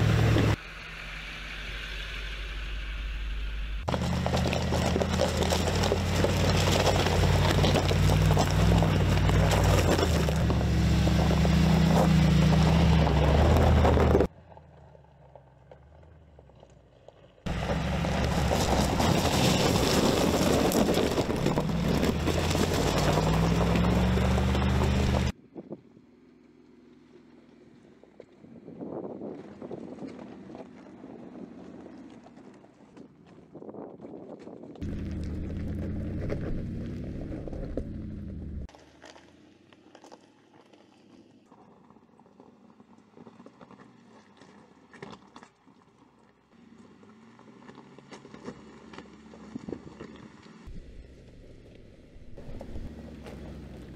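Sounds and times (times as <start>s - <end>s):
engine running under load: 0.0s - 25.3s, 34.8s - 39.0s, 47.2s - 53.9s
stones cracking and popping: 3.9s - 14.3s, 16.5s - 25.3s, 29.8s - 45.8s
tyres crunching over gravel: 3.9s - 25.4s, 29.6s - 53.9s.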